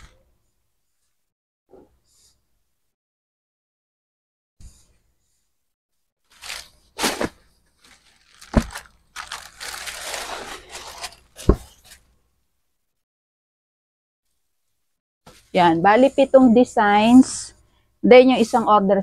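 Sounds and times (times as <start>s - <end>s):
fabric rustling: 6.3s - 12.1s.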